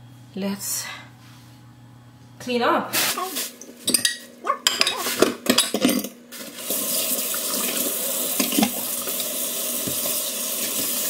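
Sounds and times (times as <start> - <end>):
dishes clinking in metal sink: 3.8 - 6.2
tap water running into sink: 6.6 - 11.0.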